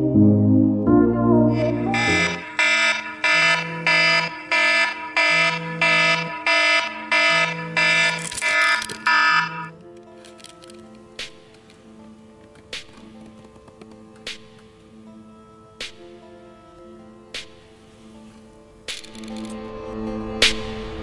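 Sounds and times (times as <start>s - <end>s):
phone alarm ringing: 1.8s - 9.7s.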